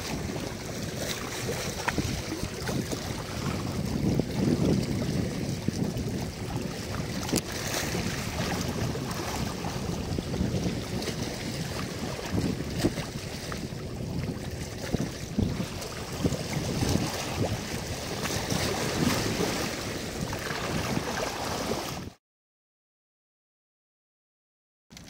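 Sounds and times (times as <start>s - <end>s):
waves lapping: 0.0s - 22.2s
wind buffeting microphone: 0.0s - 22.2s.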